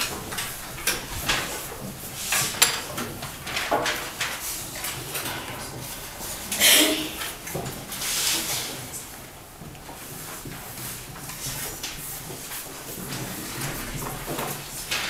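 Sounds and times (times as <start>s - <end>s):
desks and chairs knocking and scraping: 0.0s - 4.5s, 11.2s - 15.0s.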